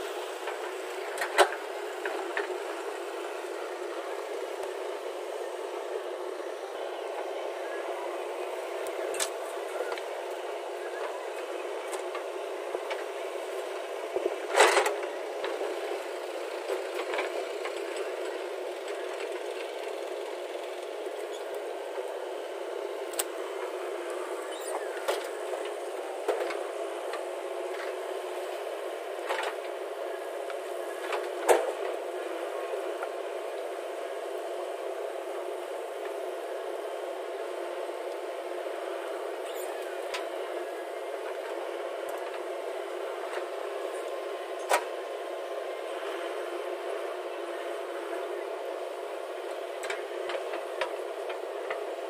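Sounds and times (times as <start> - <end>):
diesel engine running: 0.0 - 52.0.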